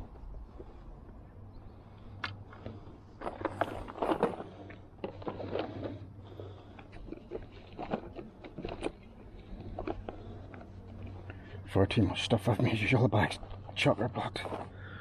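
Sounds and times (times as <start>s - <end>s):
objects scraping and knocking in bag: 3.2s - 11.2s.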